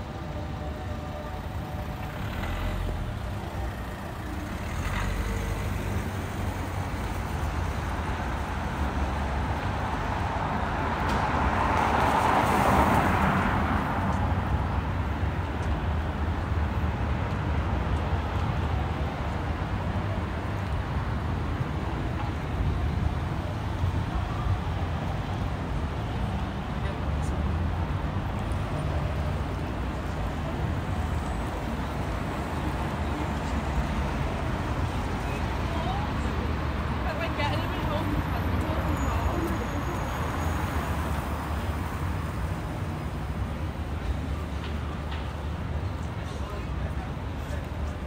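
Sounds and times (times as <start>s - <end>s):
road traffic rumble: 0.0s - 48.0s.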